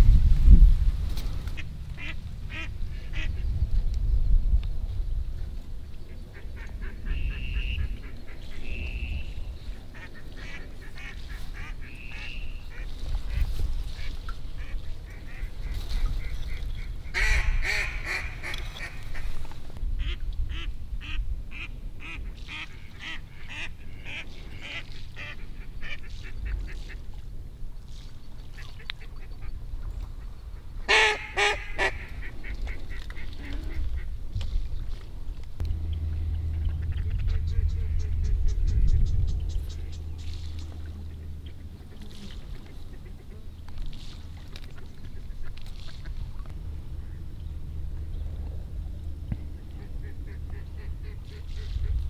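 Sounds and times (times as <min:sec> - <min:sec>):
wind rumble on microphone: 0:00.0 - 0:52.0
duck quacking: 0:01.6 - 0:03.4, 0:10.0 - 0:13.4, 0:14.0 - 0:19.3, 0:30.9 - 0:34.1.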